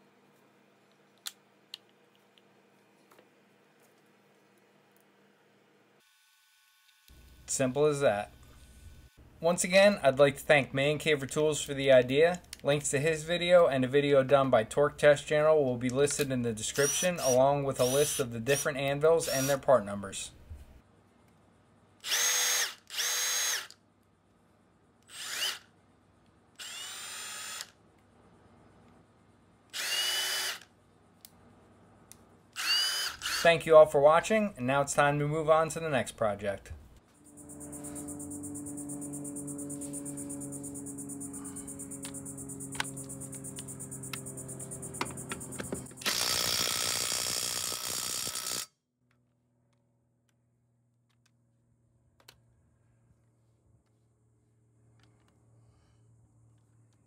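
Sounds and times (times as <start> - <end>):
impact driver motor whining: 16.7 - 19.6, 22.0 - 23.8, 25.1 - 25.7, 26.6 - 27.8, 29.7 - 30.7, 32.6 - 33.5, 45.0 - 48.6.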